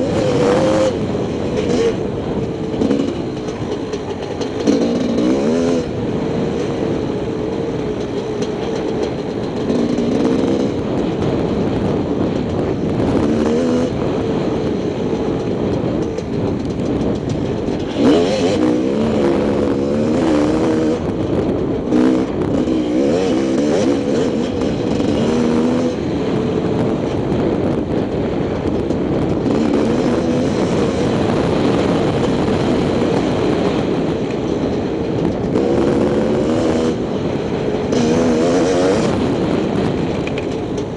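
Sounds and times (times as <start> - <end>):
dirt bike engine revving: 0.0 - 26.9, 29.3 - 39.8.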